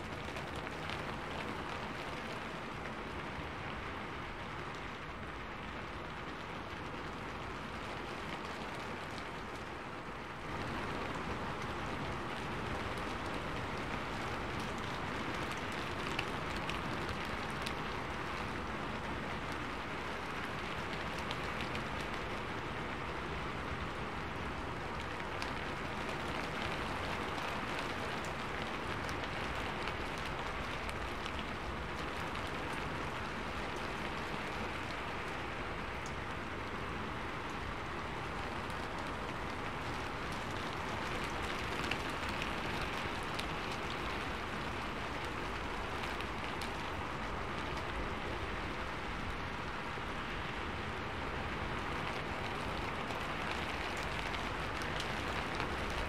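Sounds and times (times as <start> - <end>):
steady rain falling: 0.0 - 56.0
raindrops ticking: 4.4 - 49.8, 51.4 - 56.0.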